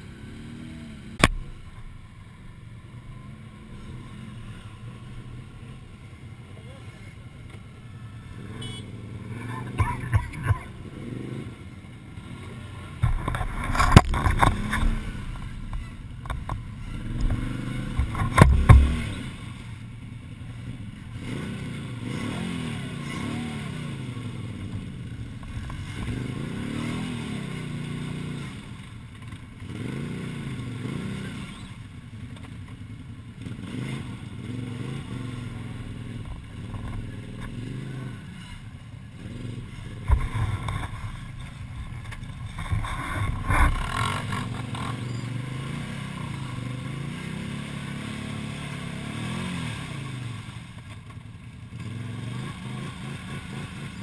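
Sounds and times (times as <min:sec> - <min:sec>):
quad bike engine revving: 0:00.0 - 0:54.0
wheels churning through mud: 0:02.9 - 0:54.0
loud thumps and clatters: 0:13.0 - 0:19.1.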